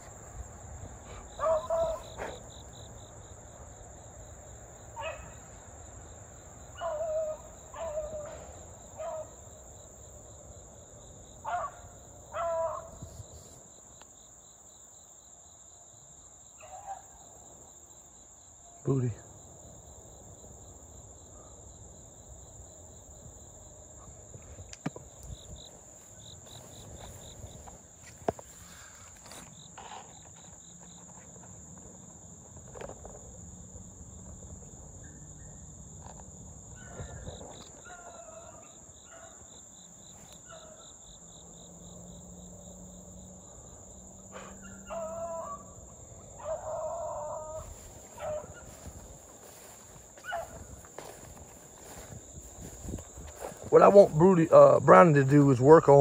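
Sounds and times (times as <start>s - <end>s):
cricket chirping: 0.0s - 56.0s
high insect drone: 0.0s - 56.0s
dogs baying faintly: 0.9s - 2.9s, 4.9s - 5.6s, 6.7s - 9.5s, 11.4s - 13.6s, 16.5s - 17.5s, 36.7s - 41.1s, 44.2s - 56.0s.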